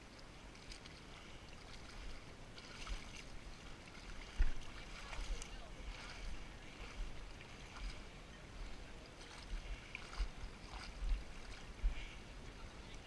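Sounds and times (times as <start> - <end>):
wading splashes in water: 0.0 - 13.0.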